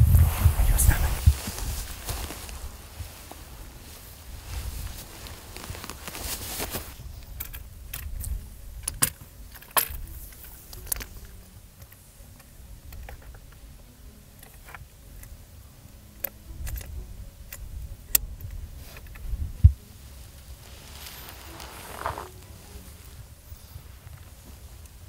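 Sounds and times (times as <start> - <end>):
clothing rustling: 0.0 - 7.4, 18.8 - 25.0
low wind rumble: 0.0 - 25.0.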